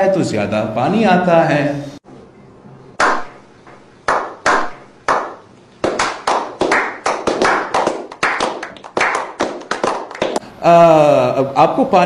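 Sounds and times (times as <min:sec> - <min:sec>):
small group clapping: 0:03.0 - 0:03.3, 0:04.1 - 0:10.4.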